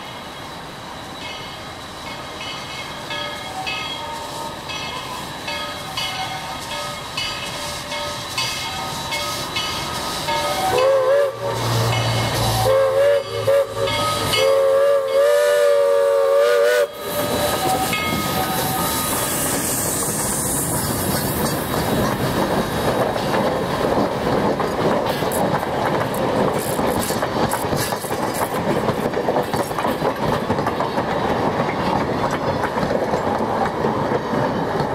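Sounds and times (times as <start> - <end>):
hissing steam: 0.0 - 34.9
steam locomotive chuffing: 0.0 - 34.9
steam whistle blasts: 10.0 - 20.2.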